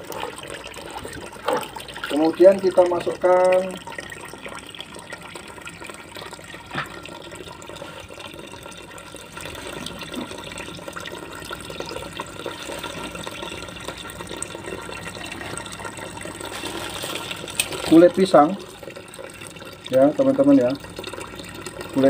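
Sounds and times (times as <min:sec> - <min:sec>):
water pouring from a hose: 0:00.0 - 0:04.7, 0:16.2 - 0:22.0.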